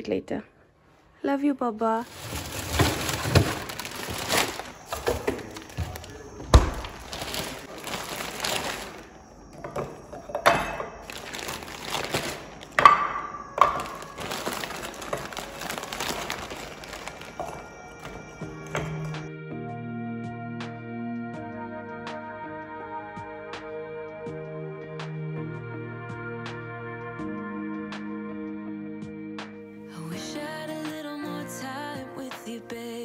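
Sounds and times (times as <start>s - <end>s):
plastic bag crinkling: 1.9s - 19.2s.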